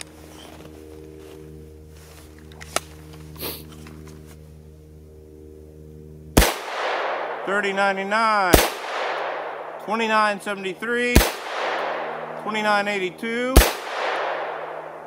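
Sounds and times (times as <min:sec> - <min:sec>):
steady low hum: 0:00.0 - 0:15.0
rifle shot with echo: 0:06.4 - 0:07.8, 0:08.4 - 0:10.3, 0:11.0 - 0:12.8, 0:13.5 - 0:15.0.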